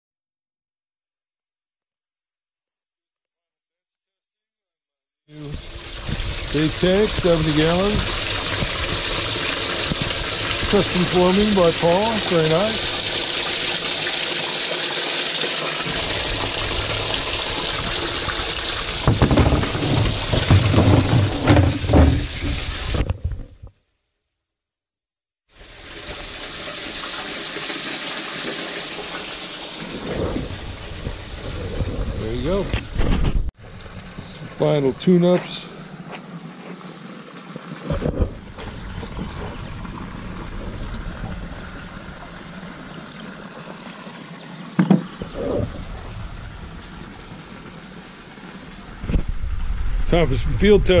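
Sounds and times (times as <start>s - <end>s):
water spraying into a tank: 5.3s - 23.4s, 25.5s - 33.0s, 33.6s - 51.0s
low bumps and knocks: 18.0s - 23.6s, 37.9s - 41.8s.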